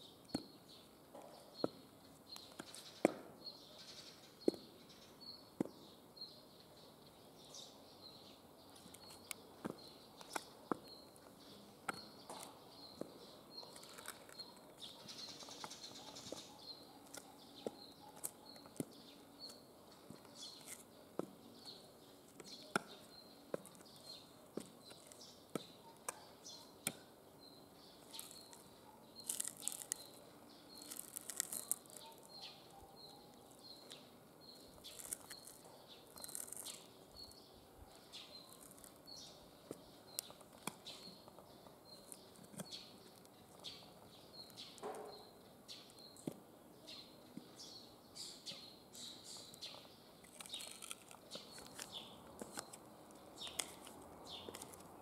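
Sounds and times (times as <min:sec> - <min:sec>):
bird chirping: 0:00.0 - 0:55.0
gritty scuffs: 0:00.3 - 0:03.4, 0:08.8 - 0:37.4, 0:49.4 - 0:55.0.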